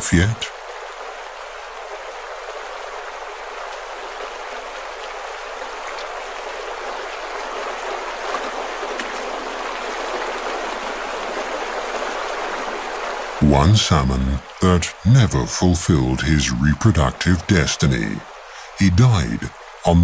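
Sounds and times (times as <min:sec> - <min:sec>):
stream running over stones: 0:00.0 - 0:20.0.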